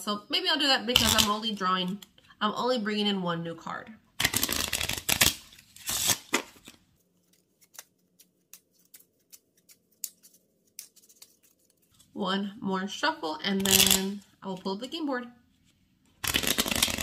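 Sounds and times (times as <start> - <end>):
playing cards being shuffled: 4.2 - 12.0, 13.6 - 14.2, 15.7 - 17.0
cards clicking: 6.0 - 11.6, 16.2 - 17.0.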